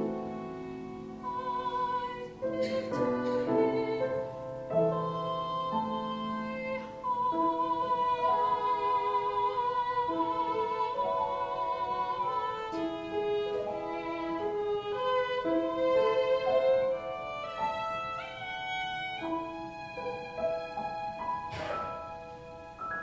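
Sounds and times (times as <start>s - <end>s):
piano accompaniment: 0.0s - 23.0s
violin melody: 0.0s - 23.0s
sharp knock: 21.5s - 22.1s.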